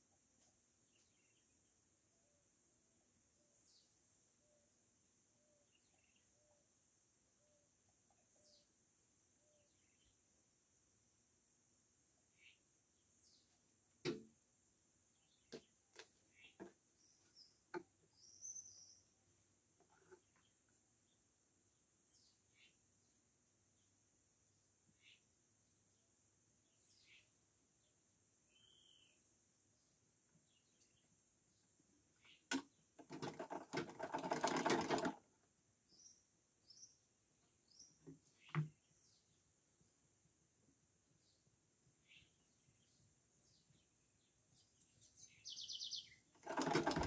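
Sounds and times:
bird chirping: 0:03.4 - 0:06.8, 0:07.4 - 0:10.3, 0:15.1 - 0:21.3, 0:26.6 - 0:32.9, 0:35.8 - 0:39.6, 0:41.1 - 0:47.0
sewing machine stitching: 0:33.0 - 0:35.3, 0:46.4 - 0:47.0.

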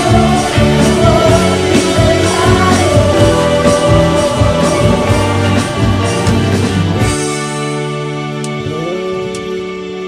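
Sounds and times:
voices singing: 0:00.0 - 0:06.8
steady drum beat: 0:00.0 - 0:07.9
pop-rock band music: 0:00.0 - 0:10.0.

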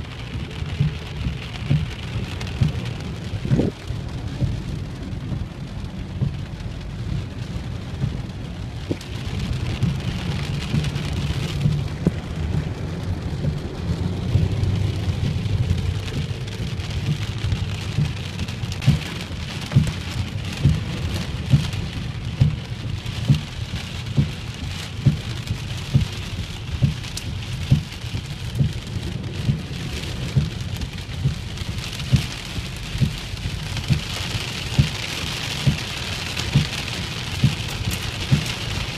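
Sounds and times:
heavy rain on a car: 0:00.0 - 0:38.9
low steady rumble: 0:00.0 - 0:38.9
short regular thump: 0:06.1 - 0:06.4, 0:26.8 - 0:27.1, 0:27.7 - 0:27.9.

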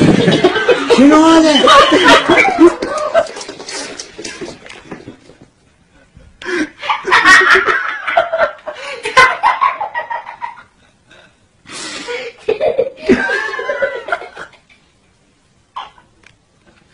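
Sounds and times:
laughter in bursts: 0:00.0 - 0:03.9, 0:06.5 - 0:10.9, 0:12.1 - 0:14.7.

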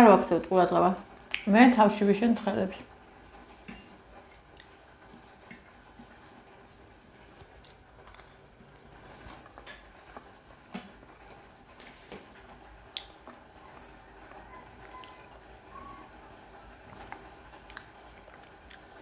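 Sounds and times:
soft wet chewing: 0:01.2 - 0:01.5, 0:03.7 - 0:06.3, 0:07.4 - 0:10.4, 0:12.8 - 0:16.2, 0:16.8 - 0:19.0.

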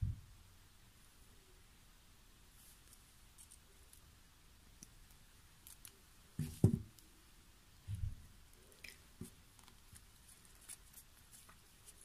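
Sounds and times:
dull knock: 0:06.4 - 0:06.9.

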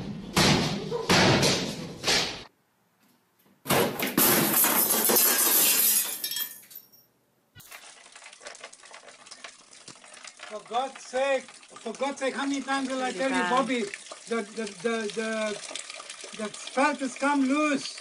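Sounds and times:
glass shattering: 0:03.7 - 0:07.7
glass shards clinking: 0:04.2 - 0:07.1.

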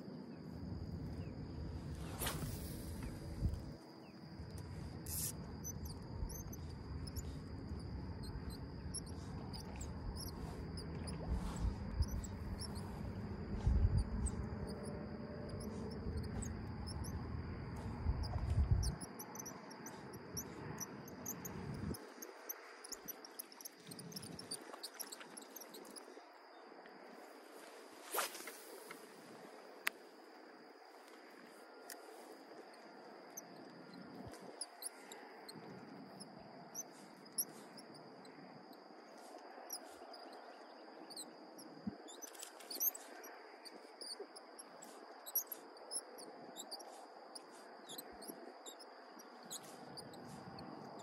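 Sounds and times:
faint chirps and ticks: 0:00.0 - 0:51.0
high insect buzz: 0:00.0 - 0:51.0
low rumble with gusts: 0:00.5 - 0:03.8, 0:04.6 - 0:19.1, 0:19.9 - 0:22.1.

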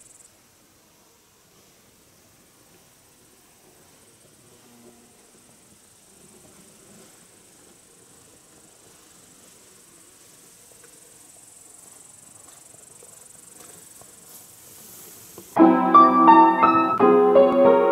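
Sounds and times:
insect trill: 0:00.0 - 0:00.4, 0:04.0 - 0:17.9
piano music: 0:15.6 - 0:17.9.

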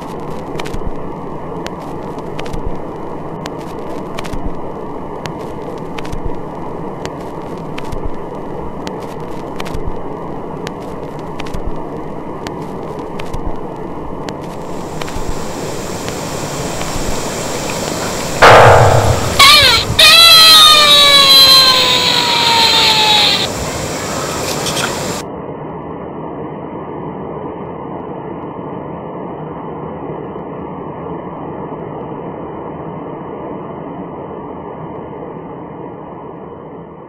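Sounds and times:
outdoor background noise: 0:00.0 - 0:37.0
faint clicks: 0:14.2 - 0:20.1.

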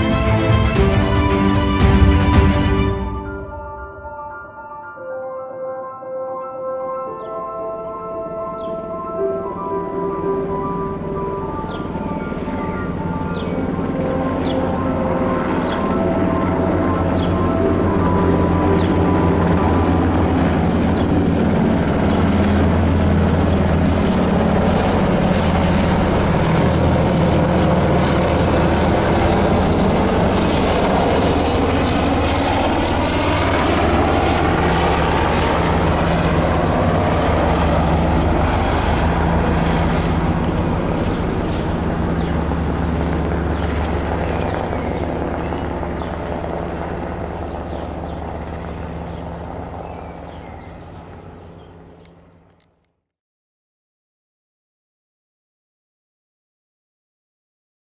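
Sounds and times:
helicopter flying overhead: 0:00.0 - 0:52.8
turbine noise: 0:09.7 - 0:47.4.

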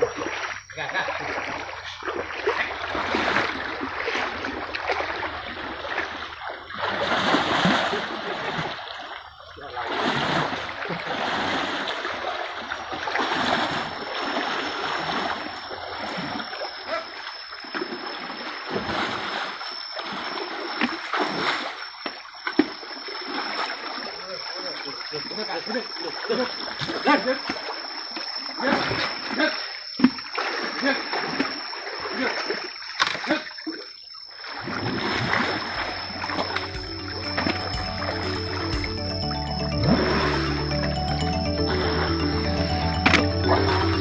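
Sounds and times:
elephants splashing in water: 0:00.0 - 0:38.6
thin high whine: 0:35.3 - 0:44.0.

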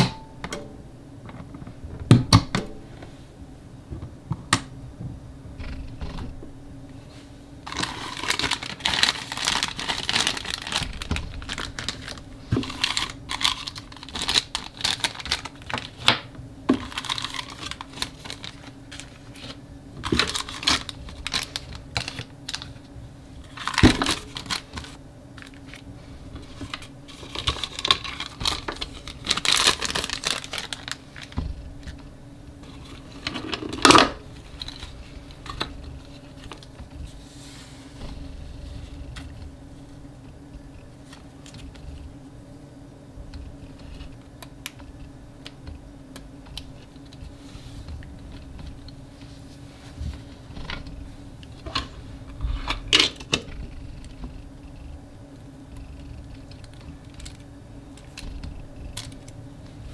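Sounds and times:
plastic wrappers crinkling: 0:07.6 - 0:37.2, 0:56.4 - 0:57.4.

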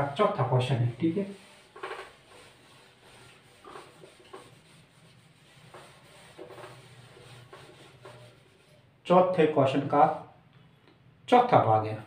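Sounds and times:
eraser rubbing on whiteboard: 0:00.0 - 0:08.9.

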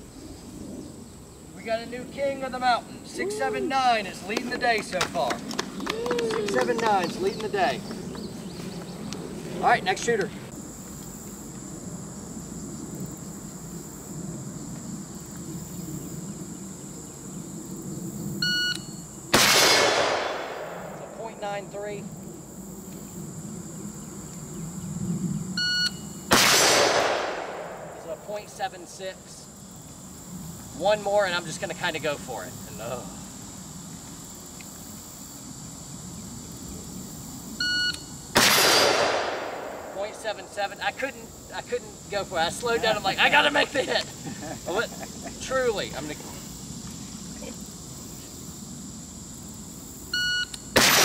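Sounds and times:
rifle shot echoing: 0:19.3 - 0:21.2, 0:26.3 - 0:28.1, 0:38.4 - 0:40.2, 0:50.8 - 0:51.0.

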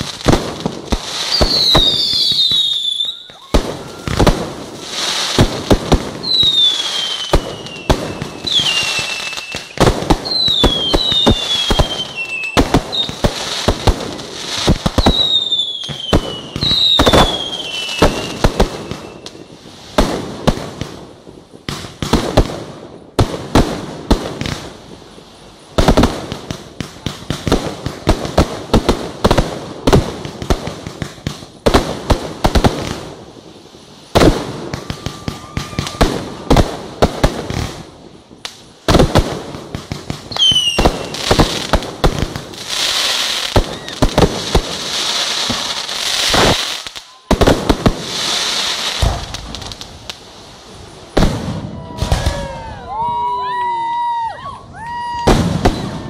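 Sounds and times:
whistling firework shells: 0:00.0 - 0:20.8, 0:34.0 - 0:54.2, 0:54.9 - 0:56.0
fireworks bursting and crackling: 0:00.0 - 0:56.0.

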